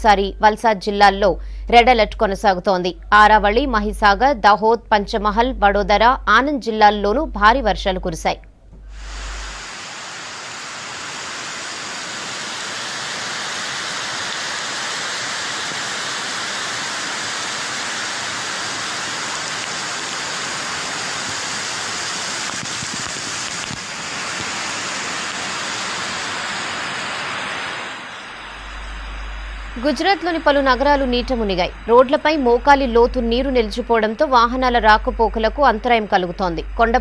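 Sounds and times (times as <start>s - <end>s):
waterfall crashing: 8.9s - 30.4s.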